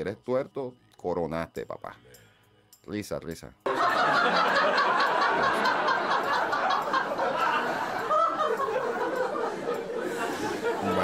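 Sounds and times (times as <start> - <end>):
audience laughing: 3.7 - 11.0.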